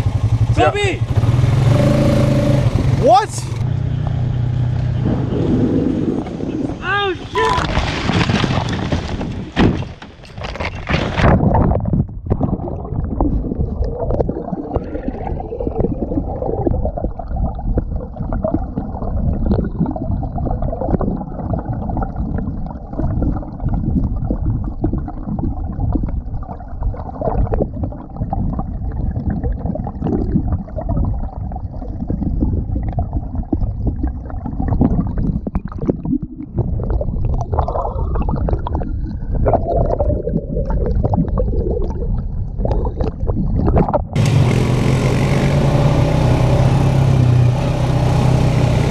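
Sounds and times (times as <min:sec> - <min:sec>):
atv crashing and tumbling: 0:07.4 - 0:11.5
muffled water gurgling: 0:11.4 - 0:44.2.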